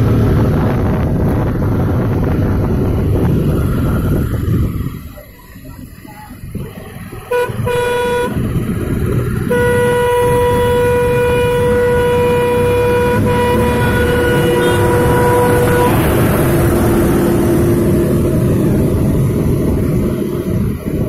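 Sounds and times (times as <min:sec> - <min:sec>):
motorcycle engine: 0:00.0 - 0:21.0
wind noise: 0:00.0 - 0:21.0
vehicle horn: 0:07.3 - 0:08.6, 0:09.4 - 0:18.1.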